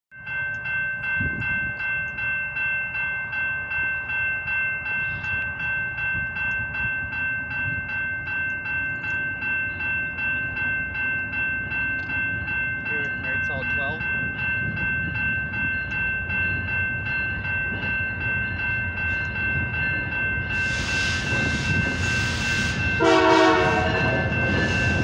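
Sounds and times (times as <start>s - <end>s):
level crossing bell ringing: 0.2s - 25.0s
diesel locomotive rumble: 4.4s - 25.0s.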